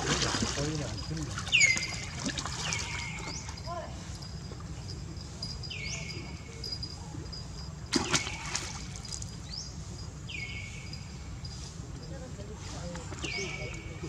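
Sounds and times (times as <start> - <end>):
monkey splashing into water: 0.0 - 3.3, 7.9 - 9.2.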